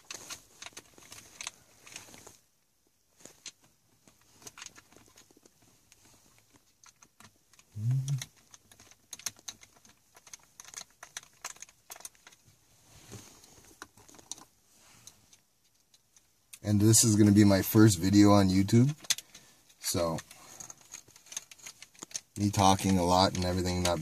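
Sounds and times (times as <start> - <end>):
brief low hum: 7.8 - 8.2
screwdriver clicks and rattles: 8.3 - 12.4, 20.2 - 22.3.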